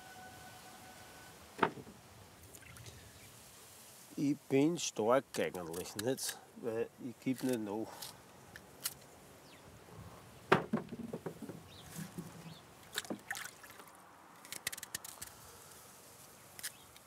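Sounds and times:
apples knocking against wood: 10.5 - 12.4.

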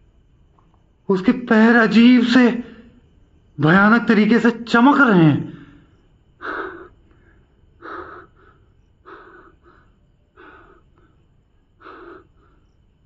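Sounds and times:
man breathing heavily: 6.4 - 12.9.

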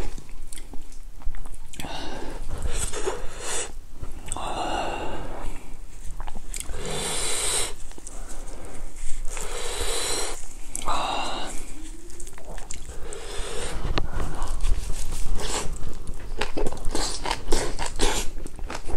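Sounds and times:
man chewing food: 0.0 - 18.9
loud nose breathing: 1.8 - 5.8, 6.6 - 12.0, 12.6 - 15.8.

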